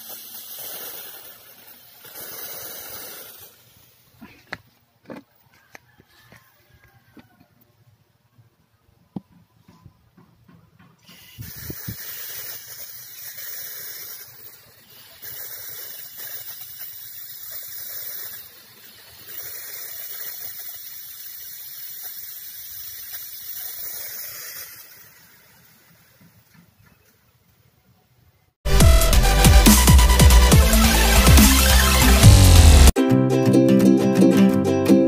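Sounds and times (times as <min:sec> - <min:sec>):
aerosol spray hissing: 0:00.0 - 0:04.4, 0:11.0 - 0:26.4, 0:28.7 - 0:33.0.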